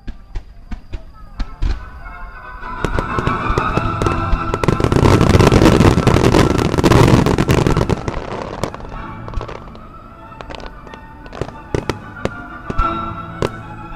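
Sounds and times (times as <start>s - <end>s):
firework bursts and crackling: 0.0s - 13.9s
music playing: 1.6s - 13.9s.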